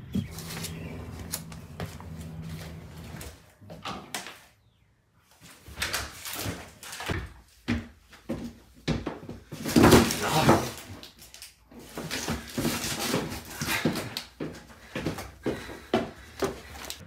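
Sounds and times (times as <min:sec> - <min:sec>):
footsteps on wooden floor: 0:00.0 - 0:03.9, 0:07.1 - 0:09.6, 0:12.0 - 0:17.0.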